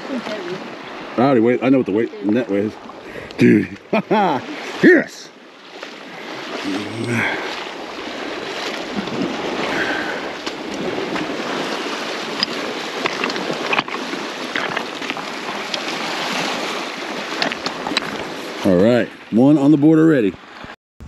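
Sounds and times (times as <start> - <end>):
lake water lapping: 0.0 - 20.8
wind on microphone: 6.6 - 18.6.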